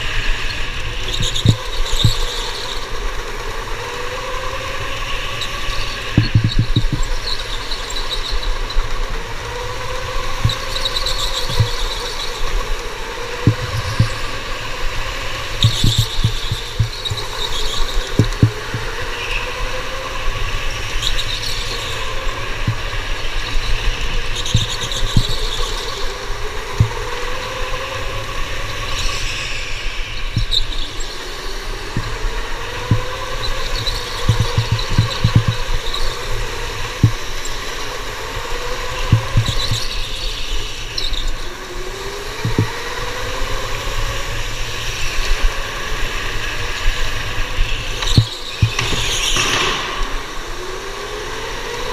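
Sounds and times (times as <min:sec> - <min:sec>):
electric kart motor whine: 0:00.0 - 0:51.9
low thumps from kart: 0:06.0 - 0:07.4, 0:10.0 - 0:12.7, 0:13.3 - 0:19.1, 0:31.9 - 0:37.4, 0:39.0 - 0:40.1, 0:42.4 - 0:42.9, 0:48.0 - 0:50.4
tyre squeal: 0:15.1 - 0:19.5, 0:32.0 - 0:36.1.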